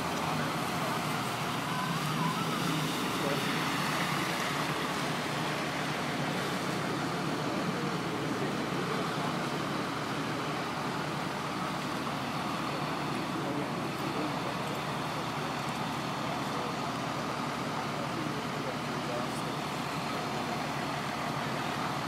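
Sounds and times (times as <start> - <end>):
faint voices talking: 0.0 - 22.0
traffic and vehicle engines: 0.0 - 22.0.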